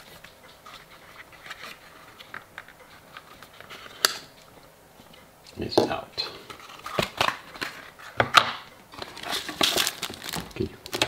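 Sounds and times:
cardboard rustling and scraping: 0:00.0 - 0:04.0, 0:09.0 - 0:11.0.

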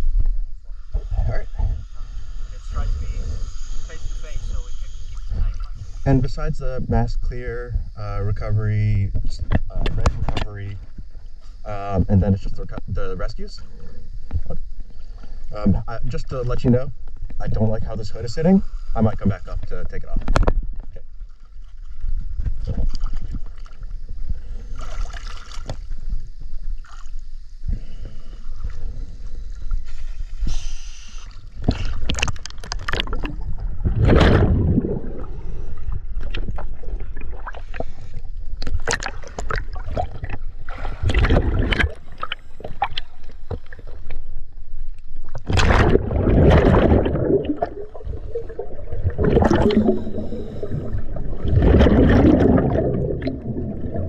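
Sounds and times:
diver breathing through regulator: 0:00.7 - 0:06.2, 0:27.6 - 0:32.1, 0:37.5 - 0:38.3, 0:49.5 - 0:51.3
gurgling exhaled bubbles: 0:30.9 - 0:44.0, 0:45.2 - 0:54.0.

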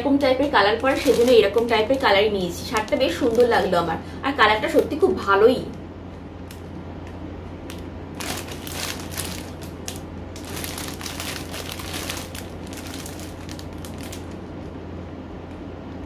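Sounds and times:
plastic packaging crinkling: 0:00.5 - 0:03.8, 0:07.6 - 0:14.8.

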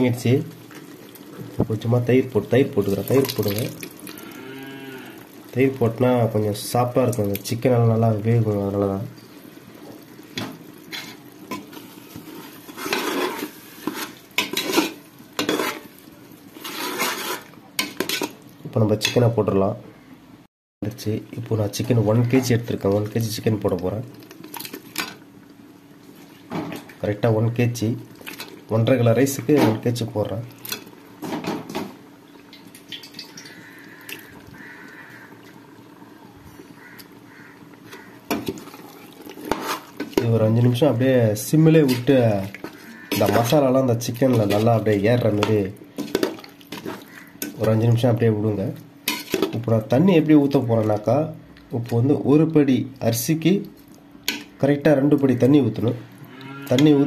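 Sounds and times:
food sizzling: 0:00.0 - 0:19.3, 0:21.7 - 0:51.5, 0:53.1 - 0:57.0
ladle scraping metal pot: 0:10.8 - 0:18.4, 0:37.9 - 0:40.4, 0:41.8 - 0:43.6, 0:44.2 - 0:47.6, 0:49.0 - 0:49.6.

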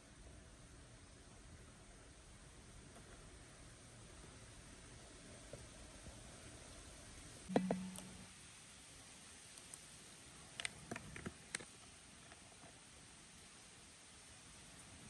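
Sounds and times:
utensil knock with low ring: 0:07.5 - 0:08.2.

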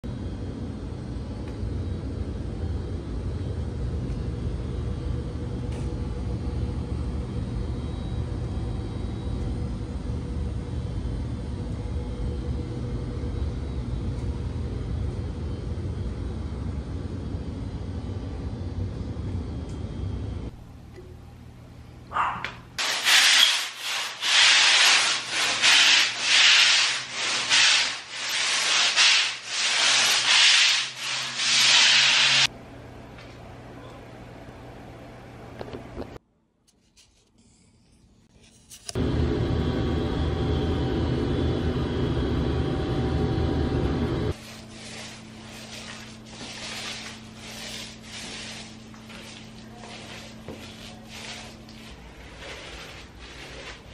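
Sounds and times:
steady low hum: 0:00.0 - 0:36.2, 0:36.9 - 0:53.9
brush scrubbing wet concrete: 0:22.8 - 0:32.5, 0:44.3 - 0:53.9.

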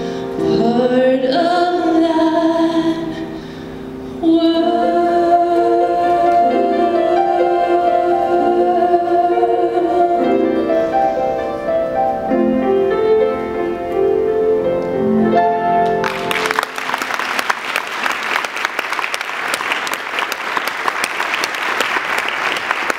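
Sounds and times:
piano chords: 0:00.0 - 0:22.9
audience applause: 0:16.0 - 0:22.9.

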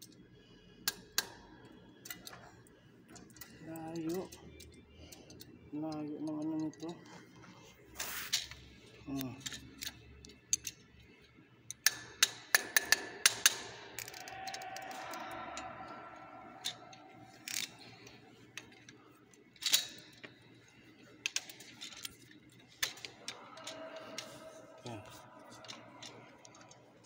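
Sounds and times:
metallic clicks and taps: 0:00.8 - 0:02.5, 0:11.7 - 0:15.3.

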